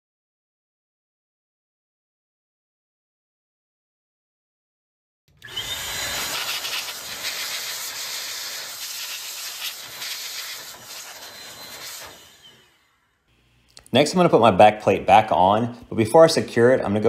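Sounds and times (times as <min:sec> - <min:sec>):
electric air blower hissing: 0:05.4 - 0:13.6.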